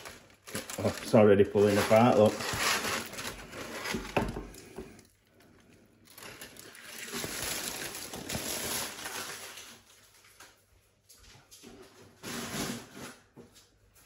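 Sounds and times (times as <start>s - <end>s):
aluminium foil crinkling: 0.0s - 10.6s.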